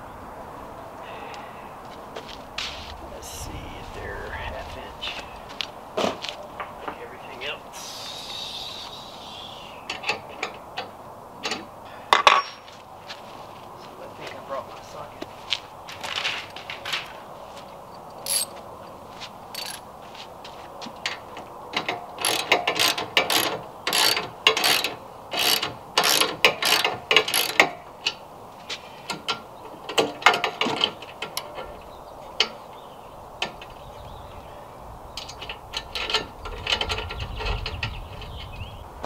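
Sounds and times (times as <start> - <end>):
ratchet wrench clicking: 18.2 - 18.5, 19.6 - 19.8, 22.2 - 27.7.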